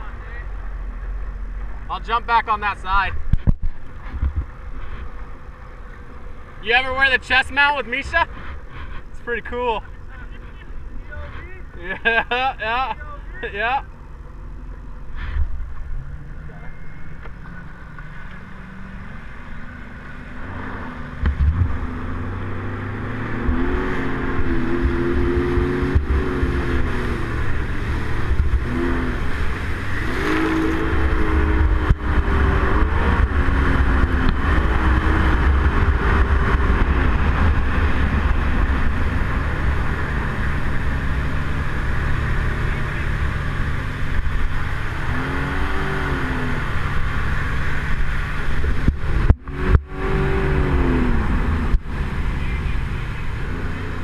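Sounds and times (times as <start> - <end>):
watercraft engine revving: 0.0 - 54.0
wind and rushing water: 18.6 - 54.0.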